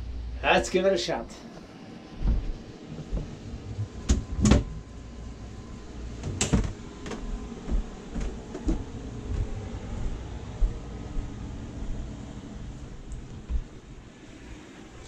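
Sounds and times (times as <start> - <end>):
footsteps on wooden steps: 2.2 - 3.4, 6.6 - 11.3, 13.0 - 14.0.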